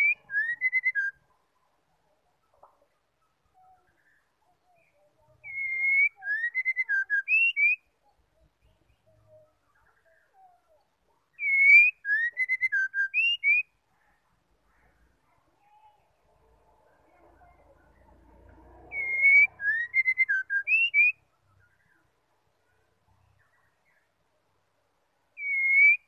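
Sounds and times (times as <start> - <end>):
bird singing whistled phrase: 0.0 - 1.2, 4.8 - 7.9, 11.4 - 13.7, 18.9 - 21.2, 25.4 - 26.0
faint soft bird notes: 0.0 - 26.0.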